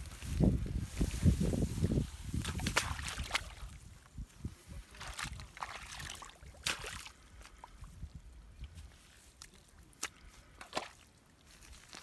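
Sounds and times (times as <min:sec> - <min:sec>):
mud squelching: 0:00.0 - 0:12.0
small water splashes: 0:02.3 - 0:03.9, 0:04.8 - 0:12.0.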